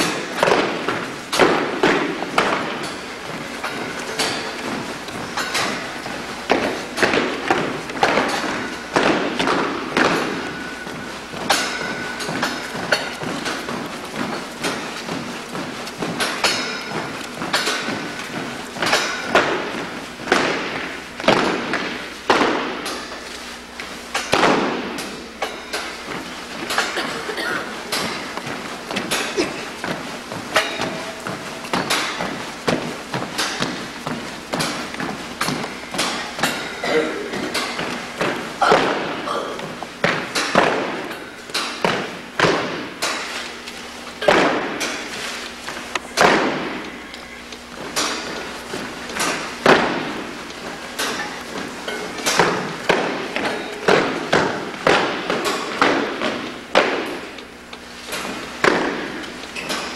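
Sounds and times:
boots stamping on a hall floor: 0:00.0 - 0:59.9.

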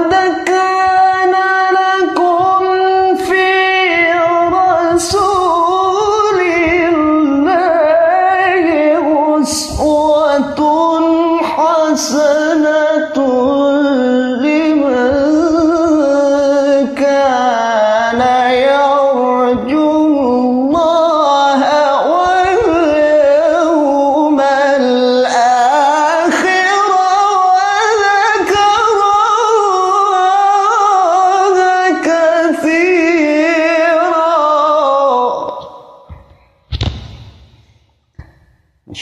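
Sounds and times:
man reciting melodically: 0:00.0 - 0:36.6, 0:38.2 - 0:39.0.

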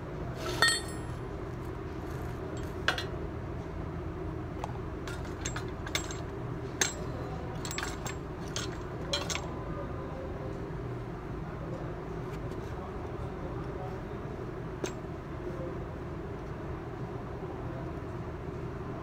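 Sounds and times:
steady low hum: 0:00.0 - 0:19.0
metal clinks and knocks: 0:00.5 - 0:01.2, 0:05.0 - 0:09.5.

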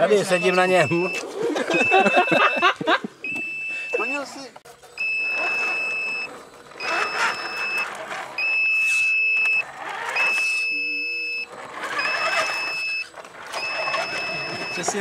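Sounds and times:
high electronic beep: 0:00.0 - 0:04.3, 0:05.0 - 0:09.6, 0:10.2 - 0:15.0
rc car motor whir: 0:03.3 - 0:15.0.

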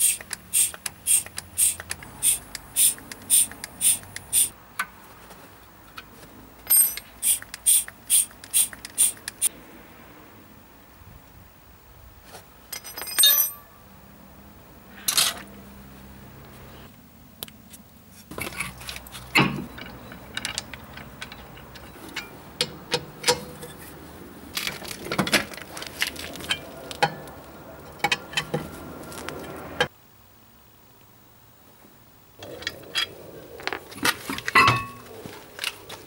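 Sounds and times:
lug wrench turning on wheel bolts: 0:00.0 - 0:04.6, 0:06.6 - 0:09.5, 0:18.3 - 0:23.9
metal tools clinking on car parts: 0:06.6 - 0:09.2, 0:12.7 - 0:13.8, 0:18.3 - 0:23.9, 0:24.5 - 0:27.3, 0:27.9 - 0:28.7, 0:34.0 - 0:35.1.

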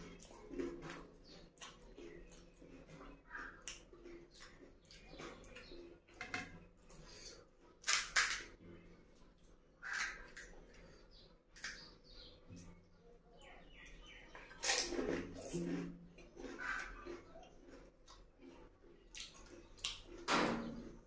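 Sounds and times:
wet slurping and chewing: 0:14.4 - 0:20.2.

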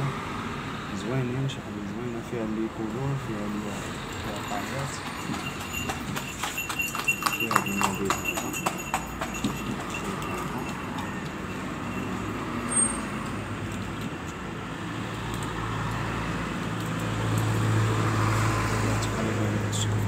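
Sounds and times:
street traffic: 0:00.0 - 0:20.0
vehicle engine passing close: 0:14.8 - 0:20.0.

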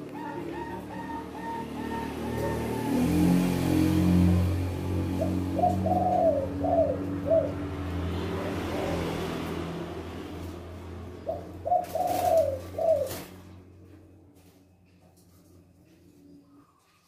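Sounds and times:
doves cooing: 0:00.0 - 0:09.2, 0:11.0 - 0:13.9.

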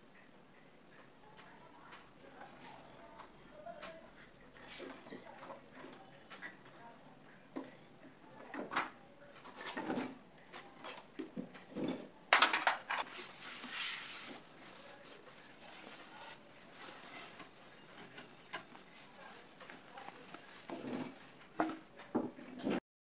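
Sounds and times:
cloth rustling: 0:13.0 - 0:21.5.

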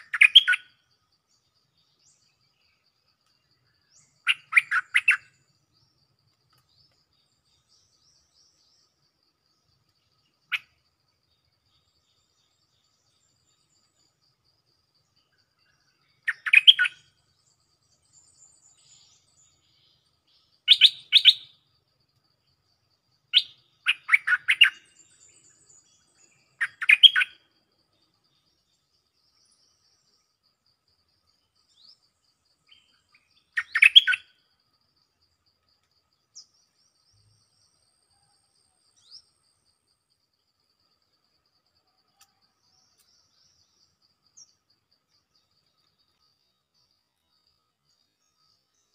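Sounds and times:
bird singing bubbly song: 0:00.0 - 0:02.8, 0:03.5 - 0:06.0, 0:15.4 - 0:21.6, 0:23.3 - 0:27.6, 0:32.6 - 0:34.4
faint bird chirps: 0:00.0 - 0:48.9.

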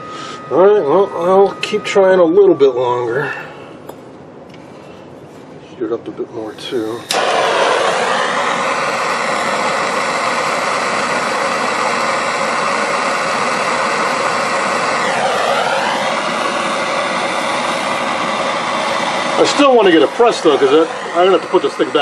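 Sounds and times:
propane torch hissing roar: 0:06.3 - 0:22.0.

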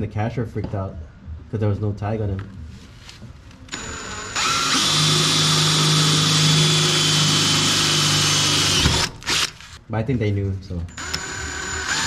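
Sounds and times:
power drill boring into metal: 0:03.7 - 0:09.6, 0:11.0 - 0:12.0.

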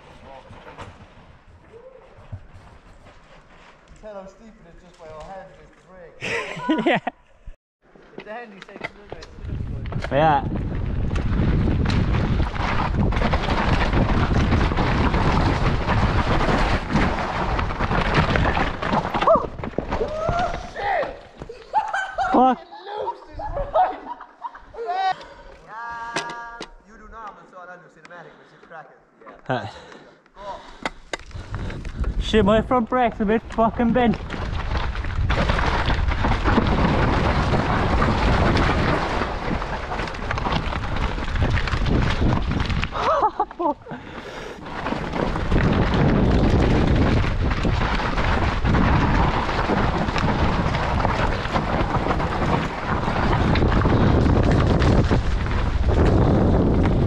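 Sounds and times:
bike rattling over rocks: 0:08.8 - 0:21.5, 0:31.1 - 0:57.0
bike tyres rumbling: 0:08.9 - 0:21.7, 0:31.0 - 0:57.0
wind buffeting microphone: 0:09.2 - 0:20.7, 0:31.3 - 0:43.1, 0:44.8 - 0:57.0.

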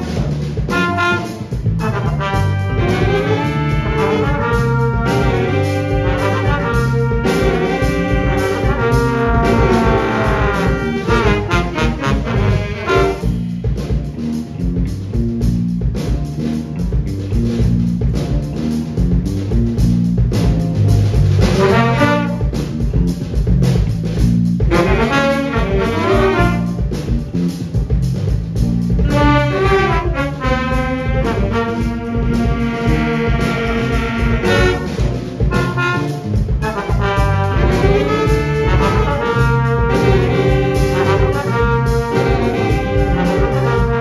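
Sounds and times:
horn section phrases: 0:00.0 - 0:13.6, 0:21.4 - 0:22.8, 0:24.6 - 0:27.0, 0:29.0 - 0:44.0
bass line and drums: 0:00.0 - 0:44.0
big band playing funk: 0:00.0 - 0:44.0.

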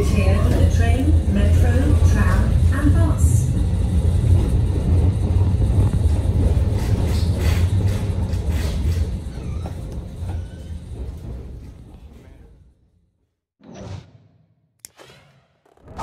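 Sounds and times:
tram rumbling: 0:00.0 - 0:12.8.

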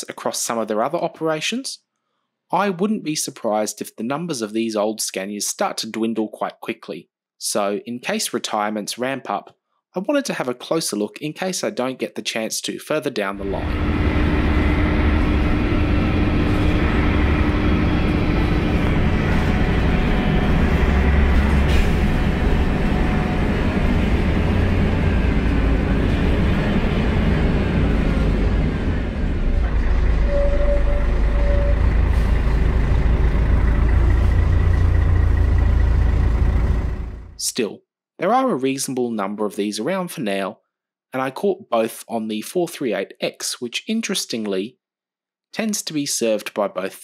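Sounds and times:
short higher tone: 0:13.4 - 0:35.0
bus engine rumble: 0:13.4 - 0:37.4.

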